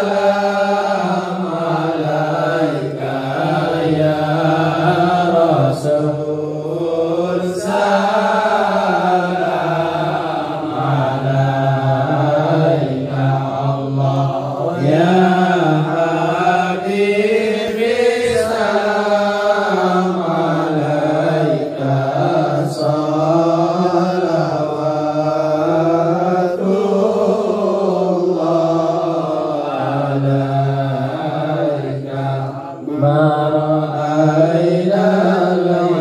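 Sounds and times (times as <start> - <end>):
men chanting: 0.0 - 36.0.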